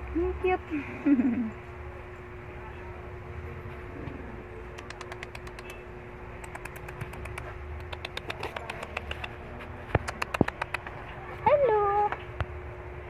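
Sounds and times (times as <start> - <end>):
dog claws clicking on tiles: 4.8 - 5.8, 6.5 - 9.4, 10.0 - 11.0.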